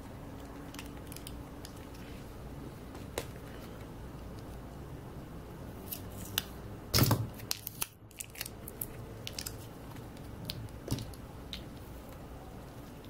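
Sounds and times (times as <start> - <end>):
tape crackling as peeled: 0.0 - 2.2, 5.8 - 6.6, 7.3 - 12.2.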